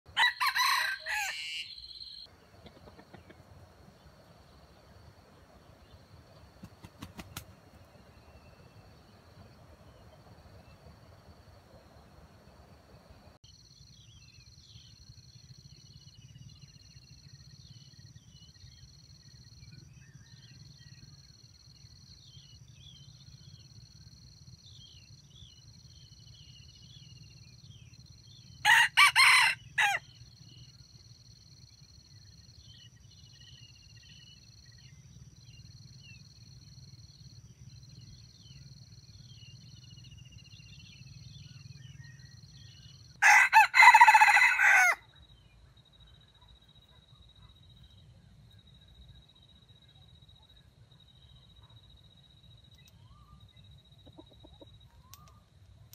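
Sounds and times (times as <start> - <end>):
rooster crowing: 0.1 - 2.2, 28.6 - 30.1, 43.2 - 45.0.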